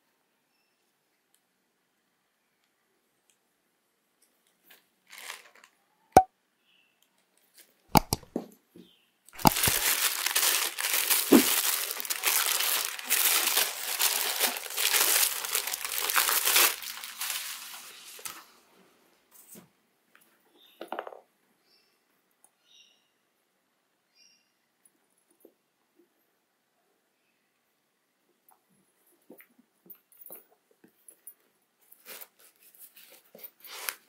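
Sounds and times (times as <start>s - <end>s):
tissue paper crinkling and rustling: 5.1s - 5.7s, 9.4s - 18.5s
sharp clicks and light taps: 8.0s - 8.4s.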